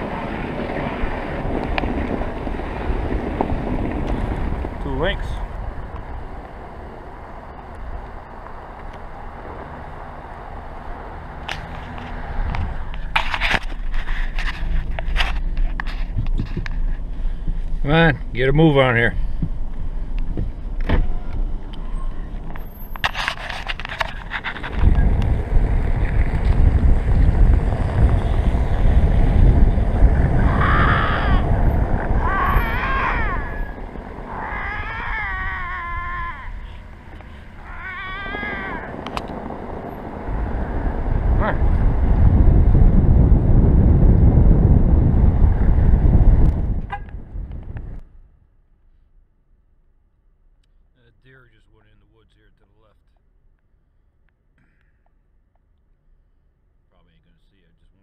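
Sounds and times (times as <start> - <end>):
vehicle rumbling on snow: 0.0 - 48.4
lynx yowling: 30.4 - 36.9, 37.6 - 39.0.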